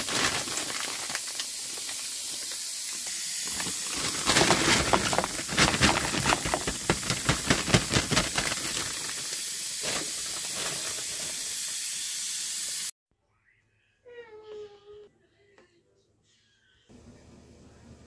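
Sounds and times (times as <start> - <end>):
vegetables sizzling in a pot: 0.0 - 12.9.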